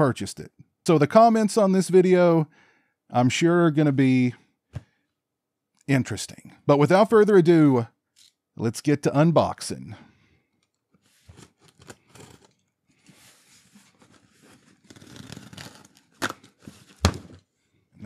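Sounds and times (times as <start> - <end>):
tape rasping and tearing: 14.0 - 17.1.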